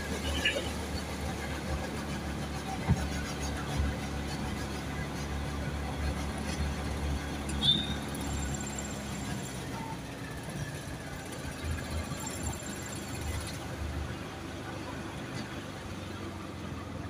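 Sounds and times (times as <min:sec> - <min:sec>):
vehicle engine and road noise: 0:00.0 - 0:17.0
high-pitched squeak: 0:07.5 - 0:08.4.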